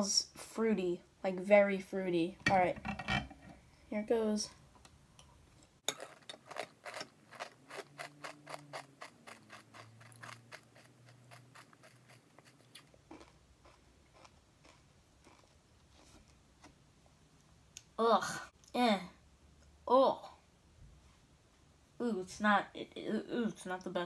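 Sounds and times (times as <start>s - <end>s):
cereal chewing crunches: 5.9s - 16.4s.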